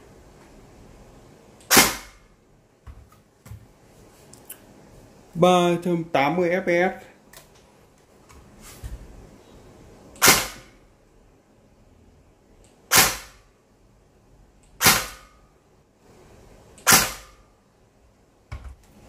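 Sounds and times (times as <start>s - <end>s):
airsoft gun shots: 1.6s - 2.3s, 10.2s - 10.8s, 12.9s - 13.5s, 14.8s - 15.4s, 16.8s - 17.4s.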